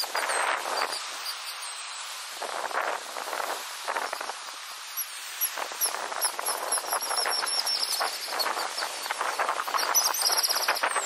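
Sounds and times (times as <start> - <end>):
rapid high-pitched chirps: 6.3 - 11.0.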